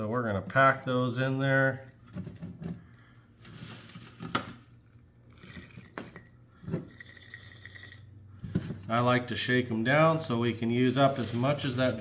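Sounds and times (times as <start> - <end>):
soft rustling and squishing: 9.9 - 12.0.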